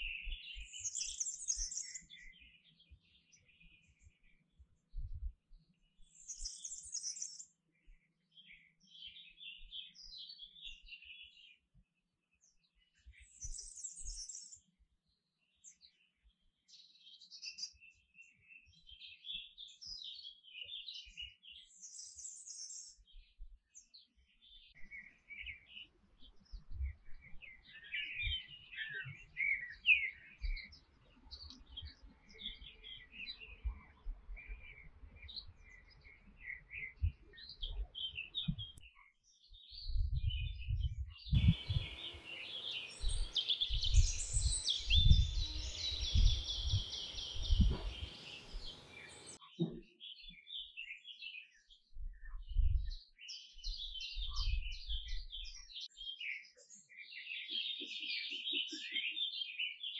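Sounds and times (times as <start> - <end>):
canary singing: 41.4 - 49.4.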